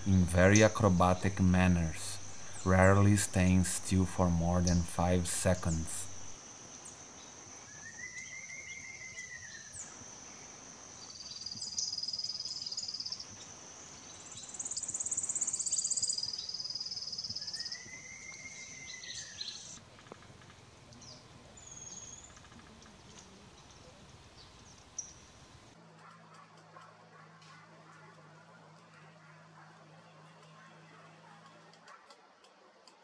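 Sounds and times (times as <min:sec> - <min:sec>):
insect buzz: 0:00.0 - 0:25.7.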